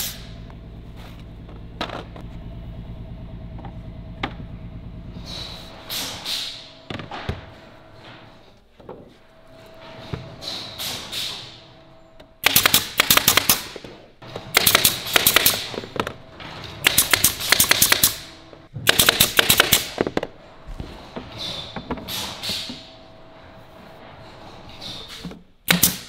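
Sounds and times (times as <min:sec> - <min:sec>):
air hissing: 0:00.0 - 0:00.4, 0:05.1 - 0:06.8, 0:10.4 - 0:11.6
nail gun firing: 0:12.4 - 0:15.8, 0:16.8 - 0:20.2, 0:25.7 - 0:26.0.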